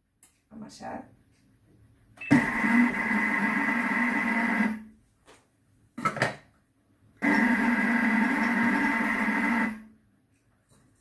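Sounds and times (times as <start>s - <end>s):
food processor motor: 2.3s - 4.8s, 7.2s - 9.8s.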